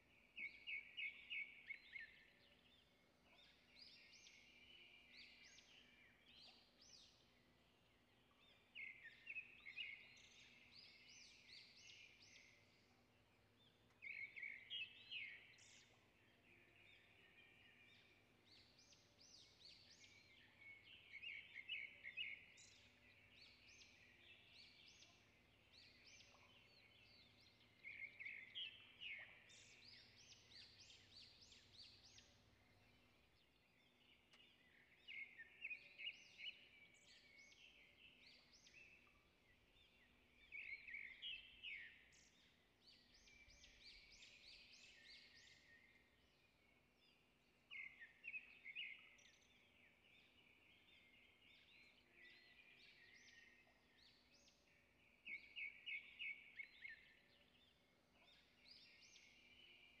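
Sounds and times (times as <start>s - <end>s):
birdsong chirps and trills: 0.0s - 60.0s.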